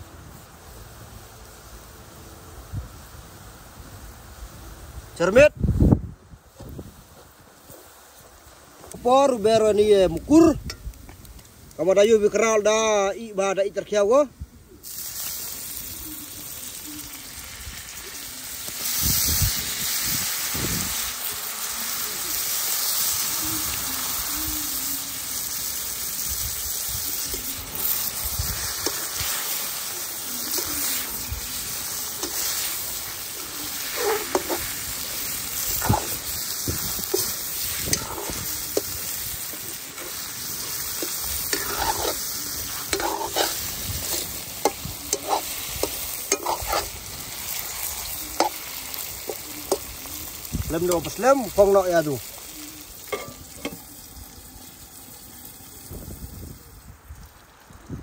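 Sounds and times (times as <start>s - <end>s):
food sizzling in hot oil: 0.0s - 13.1s, 14.6s - 58.0s
spatula scraping pan: 32.1s - 34.8s, 37.0s - 38.9s, 39.6s - 48.6s.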